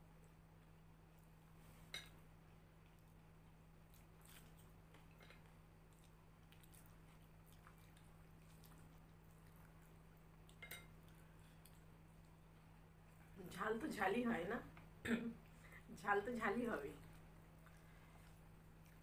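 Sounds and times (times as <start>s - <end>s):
low steady hum: 0.0s - 19.0s
quiet chewing: 0.2s - 13.4s, 17.0s - 19.0s.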